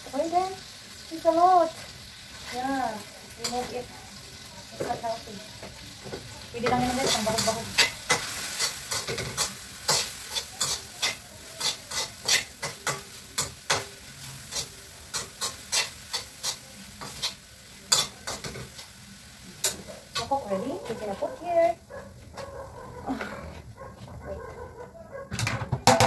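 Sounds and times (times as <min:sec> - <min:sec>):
food sizzling: 0:00.0 - 0:23.7
metal spatula scraping pan: 0:06.6 - 0:18.7.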